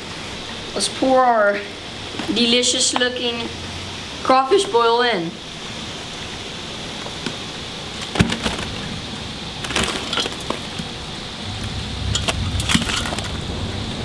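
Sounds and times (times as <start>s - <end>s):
heavy rain hissing: 0.0s - 14.0s
low rumble of thunder: 10.9s - 14.0s.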